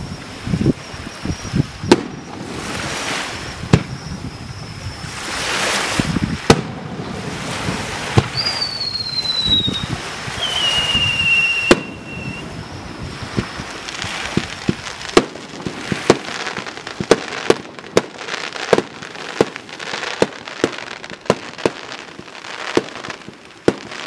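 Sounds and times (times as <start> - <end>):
descending firework whistles: 0.0 - 24.0
firework hiss: 0.0 - 24.0
firework shells bursting: 6.0 - 24.0.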